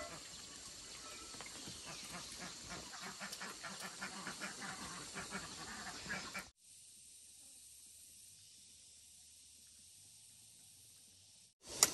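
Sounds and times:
steady hiss: 2.8s - 11.9s.

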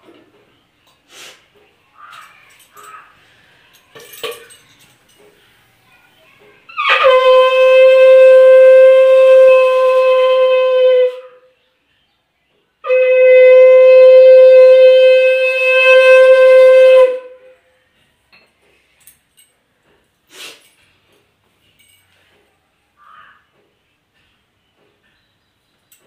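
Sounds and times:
conch shell blasts: 6.7s - 11.4s, 12.8s - 17.6s.

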